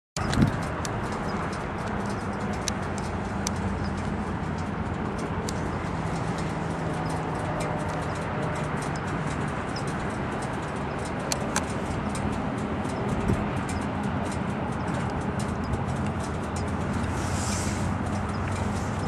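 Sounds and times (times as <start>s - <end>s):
light ticks: 0.2s - 19.0s
locomotive low drone: 0.2s - 19.0s
train rumbling hiss: 15.6s - 19.0s.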